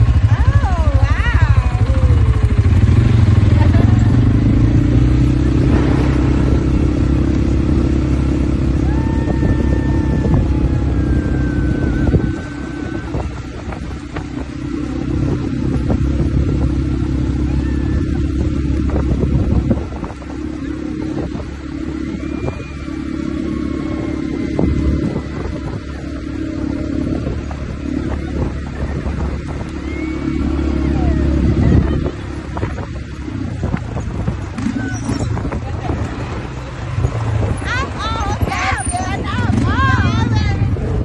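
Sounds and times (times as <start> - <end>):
quad bike engines rumbling: 0.0 - 41.0.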